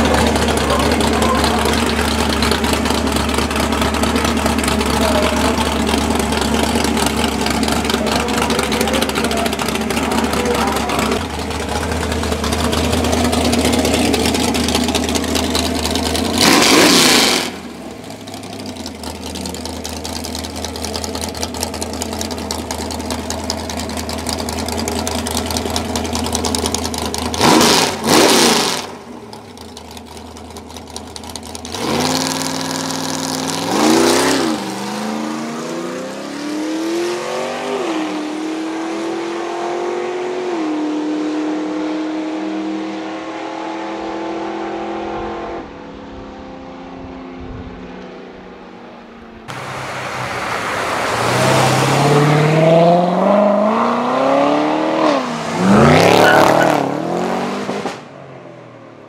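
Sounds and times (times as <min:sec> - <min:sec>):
drag car engine idling and revving: 0:00.0 - 0:59.0.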